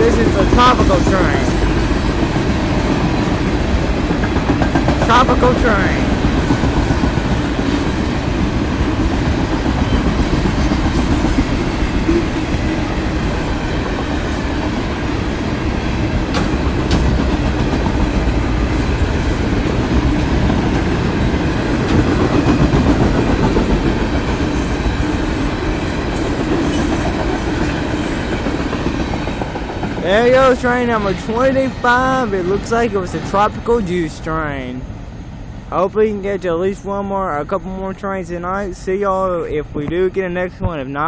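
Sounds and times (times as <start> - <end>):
train wheels rolling on rails: 0.0 - 37.0.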